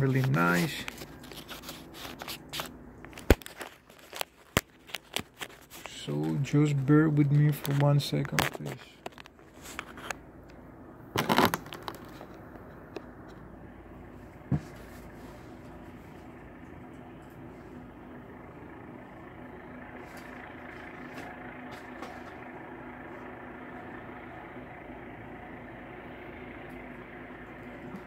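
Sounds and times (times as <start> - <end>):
mechanical hum: 0.0 - 28.0
faint low drone: 12.3 - 28.0.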